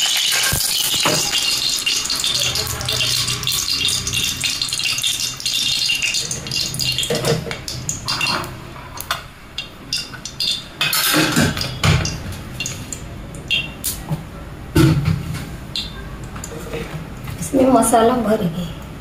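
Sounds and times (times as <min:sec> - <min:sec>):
oil crackling in a pan: 0:00.0 - 0:14.0.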